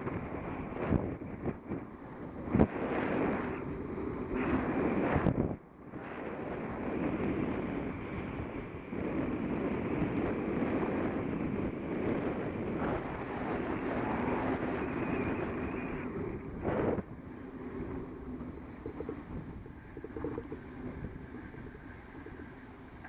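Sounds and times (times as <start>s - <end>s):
wind rushing across microphone: 0.0s - 23.0s.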